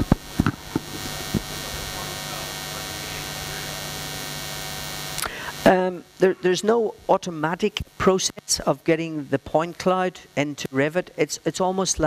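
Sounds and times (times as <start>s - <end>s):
sound system hiss: 0.0s - 6.6s
electrical mains hum: 0.0s - 12.0s.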